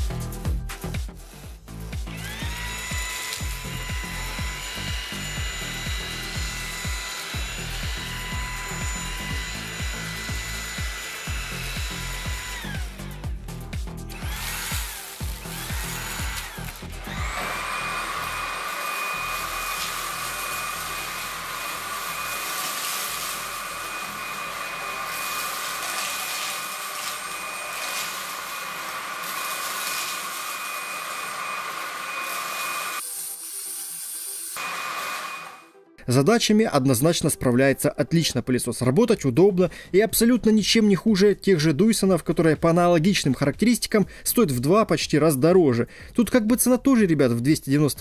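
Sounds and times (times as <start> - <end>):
stick vacuum motor whining: 2.0 - 35.7
vacuum sucking up grit: 14.1 - 35.6.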